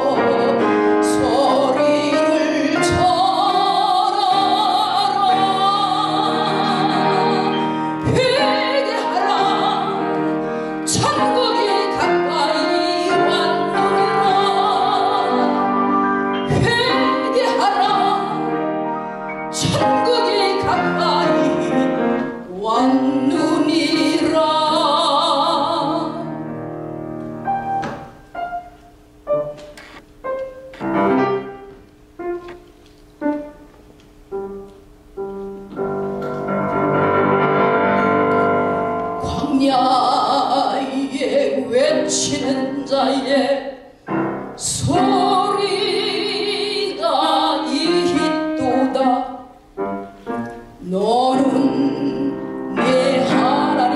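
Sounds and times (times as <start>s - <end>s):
woman singing with vibrato: 0.0s - 18.9s, 19.5s - 26.4s, 39.2s - 44.0s, 44.6s - 49.6s, 50.8s - 53.9s
piano: 0.0s - 53.9s.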